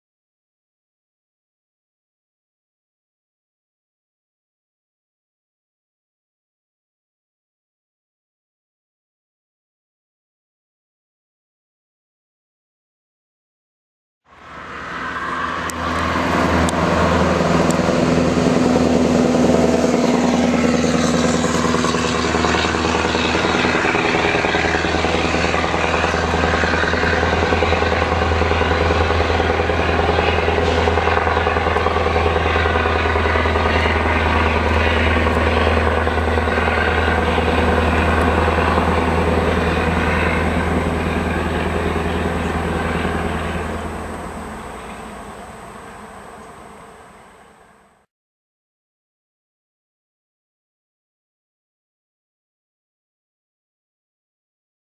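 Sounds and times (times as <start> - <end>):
diesel engine deep exhaust: 14.3 - 48.0.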